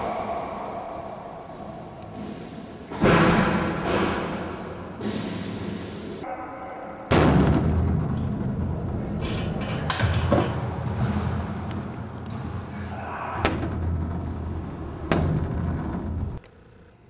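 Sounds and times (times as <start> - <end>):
steady low hum: 0.0 - 17.0
balls banging against court walls: 7.2 - 16.4.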